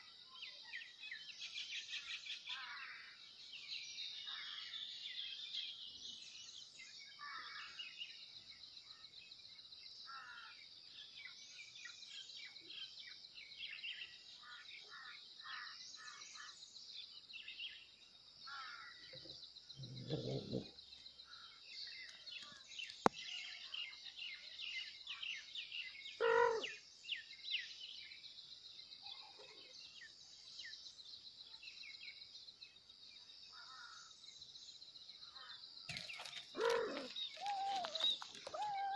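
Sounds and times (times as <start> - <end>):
birds chirping: 11.0 - 38.9
lower louder bird call: 26.1 - 26.8, 36.6 - 38.9.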